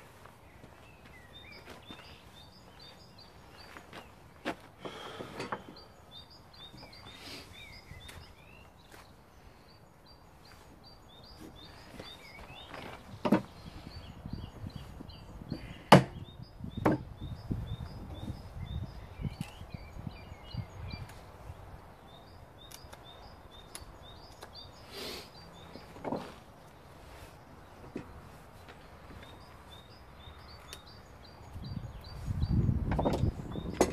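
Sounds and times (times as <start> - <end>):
small bird chirping: 0.0 - 33.9
tools knocking on wooden workbench: 13.2 - 13.5, 16.8 - 17.1.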